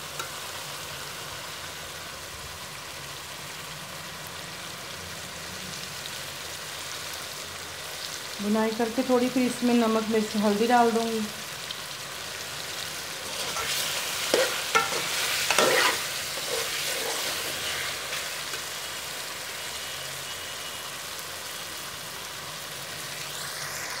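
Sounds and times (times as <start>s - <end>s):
chicken sizzling in oil: 0.0s - 24.0s
metal spoon scraping pan: 13.2s - 18.7s.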